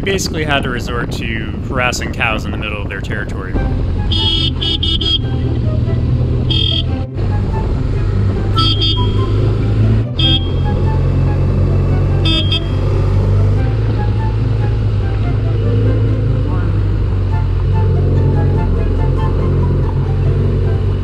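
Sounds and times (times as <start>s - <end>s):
motorcycle engine running: 2.8s - 21.0s
motorcycle horn beeps: 4.1s - 5.4s, 6.5s - 7.0s, 8.6s - 9.5s, 10.2s - 10.9s, 12.2s - 13.0s.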